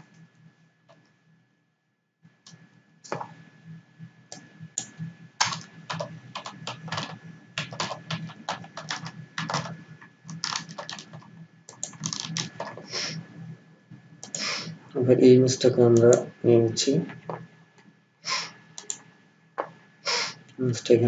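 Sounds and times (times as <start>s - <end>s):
faint low hum: 0.0s - 21.0s
typing on computer keyboard: 4.3s - 13.1s, 14.2s - 14.5s, 18.8s - 19.0s.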